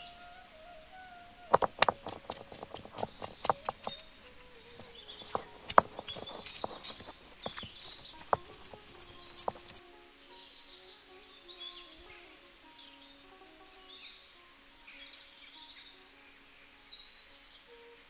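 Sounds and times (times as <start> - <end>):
stone clacking on stone: 1.5 - 9.8
stone grinding scrape: 1.5 - 9.8.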